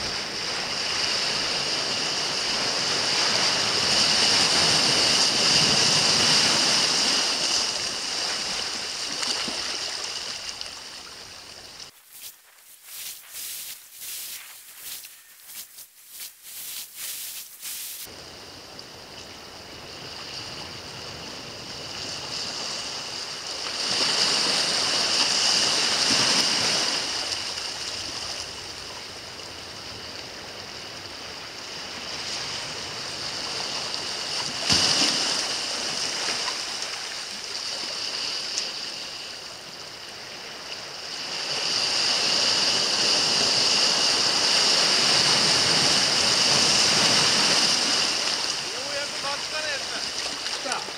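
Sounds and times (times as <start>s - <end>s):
surf washing over rocks: 0.0s - 18.5s, 41.2s - 50.9s.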